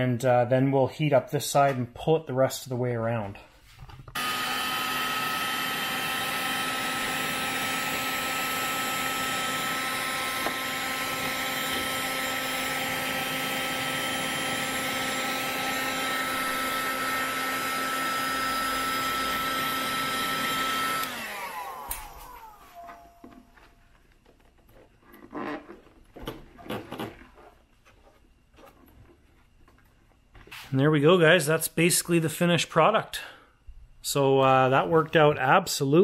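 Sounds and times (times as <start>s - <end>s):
heat gun fan whine: 4.2s - 24.3s.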